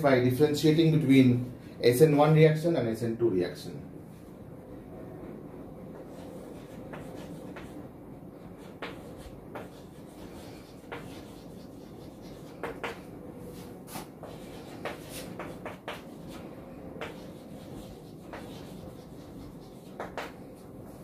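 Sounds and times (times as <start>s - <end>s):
low room hum: 0.0s - 21.0s
chalk tapping and scratching: 6.0s - 7.8s, 8.5s - 21.0s.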